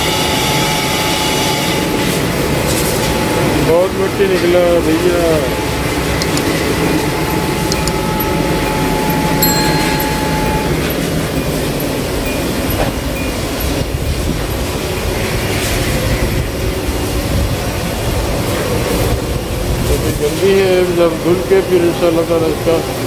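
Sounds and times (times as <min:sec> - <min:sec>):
car wash machinery rumbling: 0:00.0 - 0:23.0
faint steady tone: 0:07.2 - 0:13.8.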